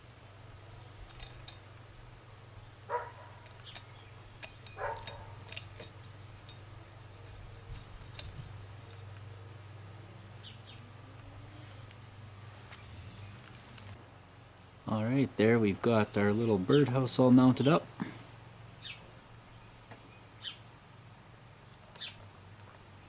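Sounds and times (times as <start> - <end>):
steady low hum: 0.0 - 23.0
pottery clicks and scrapes: 1.0 - 1.8, 2.9 - 9.0.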